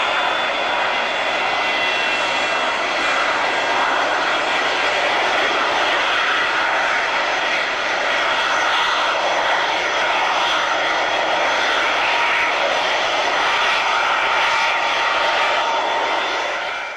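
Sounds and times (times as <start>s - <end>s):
jet engines roaring: 0.0s - 16.9s.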